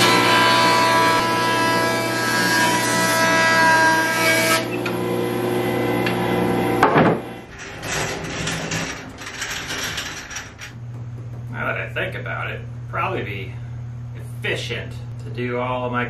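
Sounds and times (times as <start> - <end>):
power saw cutting a board: 0.0 - 8.4
motor humming: 4.6 - 11.6
wood knocking: 6.8 - 7.3, 10.7 - 11.5.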